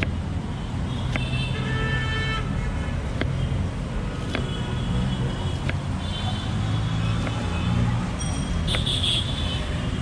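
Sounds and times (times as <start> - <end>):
knife tapping on wooden cutting block: 0.0 - 0.2, 1.1 - 1.3, 3.1 - 3.4, 4.2 - 4.5, 8.7 - 8.9
road traffic rumble: 0.0 - 10.0.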